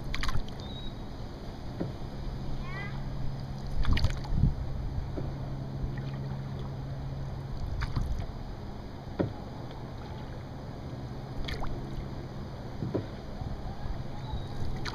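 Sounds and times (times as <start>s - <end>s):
paddle strokes knocking and splashing: 0.0s - 0.6s, 3.6s - 4.4s, 7.6s - 8.3s, 9.1s - 10.4s, 11.4s - 12.1s, 12.8s - 13.2s, 14.6s - 14.9s
faint steady hum: 0.0s - 14.9s
wind and water wash: 0.0s - 14.9s.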